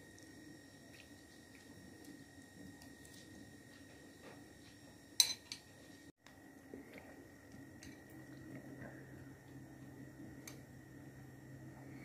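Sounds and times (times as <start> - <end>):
soft chewing: 0.1 - 4.4.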